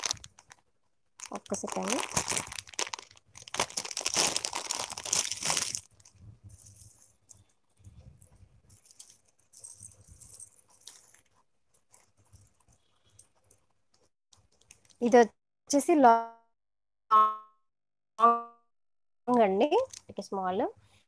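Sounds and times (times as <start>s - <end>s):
plastic wrapping crinkling: 0.0s - 7.4s, 8.8s - 13.3s.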